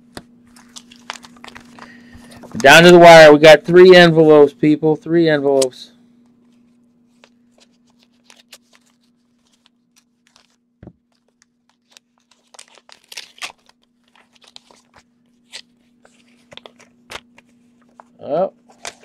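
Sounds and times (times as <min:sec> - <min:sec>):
paper crinkling: 0:00.4 - 0:02.8, 0:06.4 - 0:19.0
paper envelope tearing: 0:00.5 - 0:02.7, 0:11.2 - 0:18.0.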